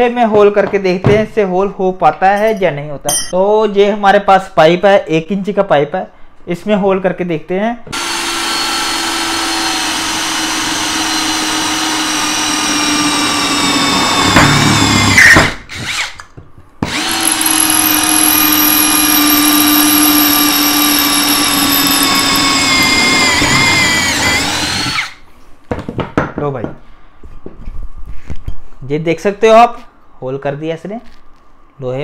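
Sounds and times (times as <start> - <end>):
cordless drill boring into steel: 8.0 - 16.2, 16.9 - 25.2.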